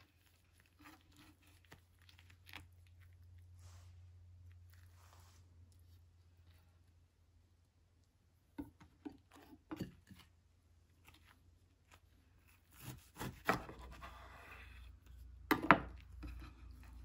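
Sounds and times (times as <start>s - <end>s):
knife slicing spring roll: 12.6s - 14.2s.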